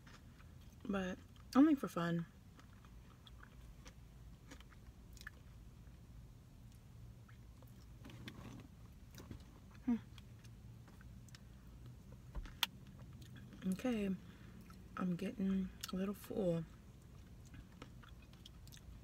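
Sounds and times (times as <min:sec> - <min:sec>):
person chewing food: 0:00.0 - 0:01.6, 0:02.4 - 0:06.0, 0:14.4 - 0:15.0, 0:16.8 - 0:19.0
low steady hum: 0:00.0 - 0:19.0.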